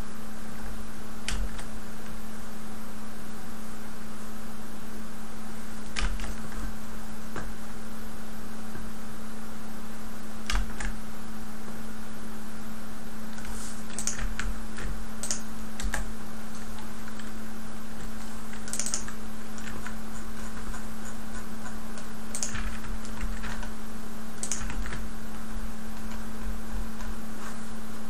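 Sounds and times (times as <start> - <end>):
steady low hum: 0.0 - 28.0
keyboard keys clicking: 1.3 - 2.2, 5.9 - 6.6, 10.5 - 11.0, 13.4 - 17.4, 18.0 - 23.7, 24.4 - 26.3.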